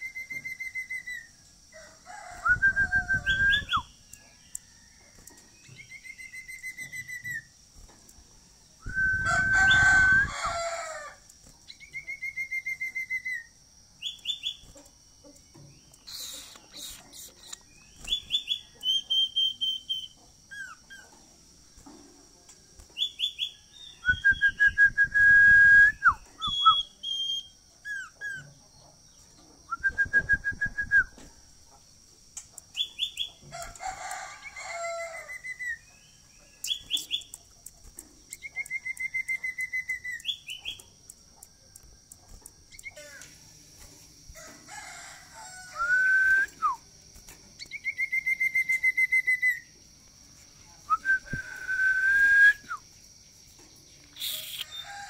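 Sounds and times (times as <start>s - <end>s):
bird singing whistled notes: 0.0s - 1.4s, 2.4s - 7.5s, 8.8s - 10.6s, 11.7s - 14.7s, 15.4s - 21.0s, 23.0s - 28.5s, 29.7s - 31.2s, 32.7s - 33.4s, 35.3s - 37.5s, 38.3s - 40.9s, 42.7s - 43.2s, 47.6s - 49.7s, 50.9s - 52.8s, 54.0s - 54.9s.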